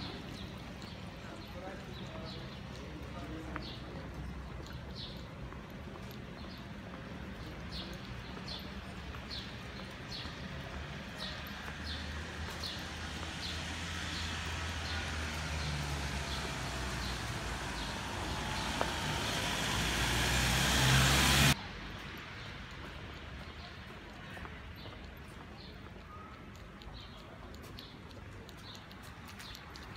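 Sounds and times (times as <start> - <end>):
vehicle engines running: 0.0 - 21.6
tyres hissing on wet asphalt: 10.8 - 21.6.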